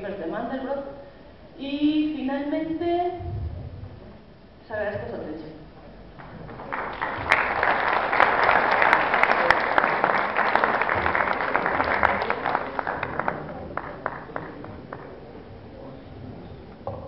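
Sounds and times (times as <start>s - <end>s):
audience applauding: 6.2s - 15.3s.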